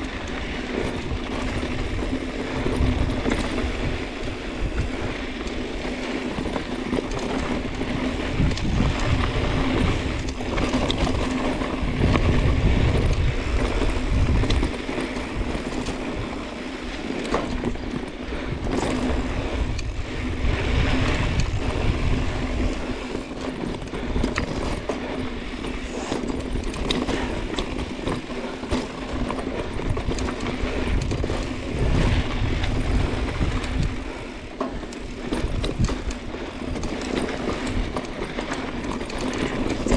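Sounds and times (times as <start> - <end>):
bike clattering over bumps: 0.0 - 39.9
bike tyres rolling over dirt: 0.0 - 39.9
wind on microphone: 7.2 - 16.4, 17.6 - 24.8, 28.9 - 38.0.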